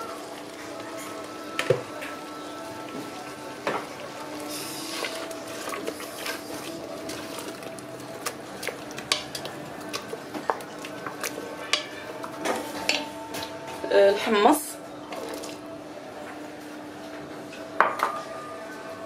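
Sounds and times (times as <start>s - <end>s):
spoon stirring thick sauce: 4.8s - 13.0s.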